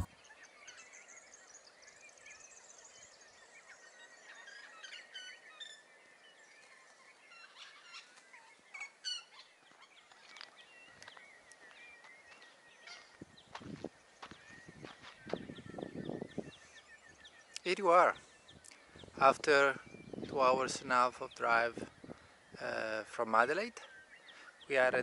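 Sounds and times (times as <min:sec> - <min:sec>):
birds chirping and whistling: 0:00.0 - 0:25.0
soft outdoor hiss: 0:00.0 - 0:25.0.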